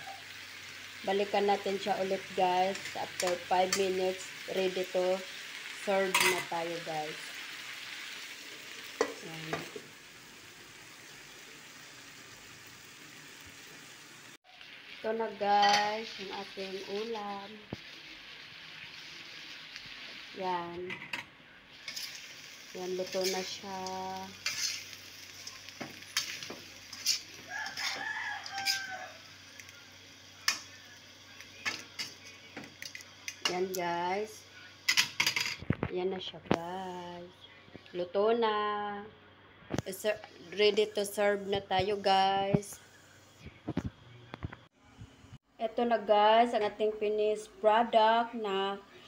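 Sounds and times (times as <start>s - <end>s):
food sizzling in a wok: 0.0s - 35.8s, 39.8s - 43.8s
metal spatula scraping wok: 2.6s - 6.6s, 21.7s - 29.2s
rooster crowing: 27.4s - 29.4s.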